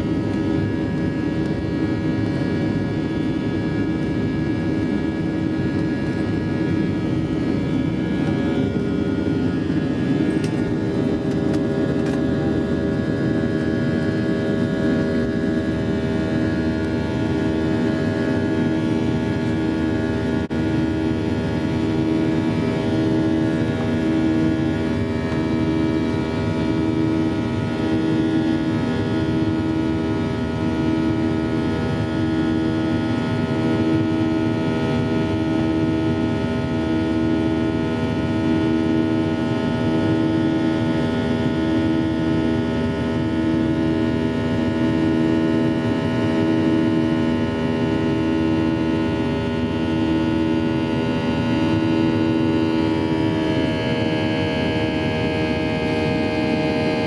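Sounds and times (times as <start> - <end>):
jet engine drone in cabin: 0.0 - 57.0.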